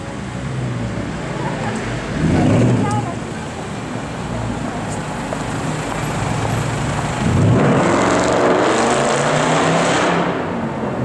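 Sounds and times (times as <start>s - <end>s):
car engine accelerating hard: 6.1s - 11.0s.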